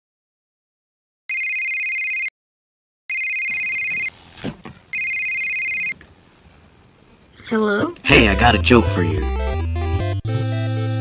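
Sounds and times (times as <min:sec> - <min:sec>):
telephone ringing: 0:01.3 - 0:02.3, 0:03.1 - 0:04.2, 0:04.9 - 0:06.0.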